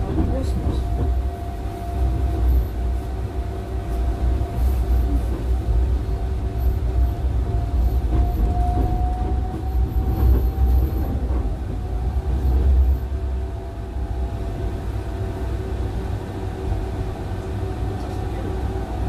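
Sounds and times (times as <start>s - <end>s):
steady tram whine: 0.0s - 19.0s
tram wheels rumbling on rail: 0.0s - 19.0s.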